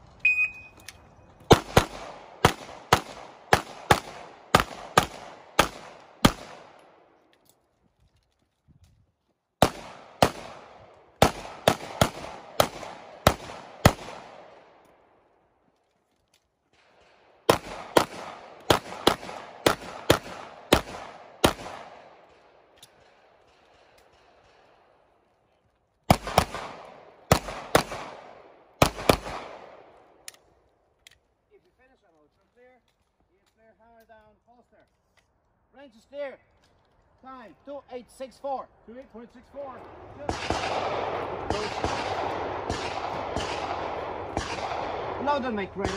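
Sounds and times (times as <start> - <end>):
pistol shots with echo: 1.5 - 7.1, 9.6 - 14.8, 16.8 - 24.9, 26.1 - 30.0, 40.0 - 45.9.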